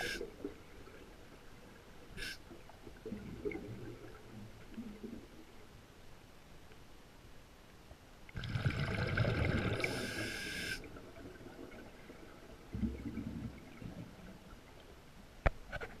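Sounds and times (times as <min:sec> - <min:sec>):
scuba regulator bubbling and hissing: 0:00.0 - 0:00.4, 0:02.1 - 0:04.2, 0:08.4 - 0:13.8.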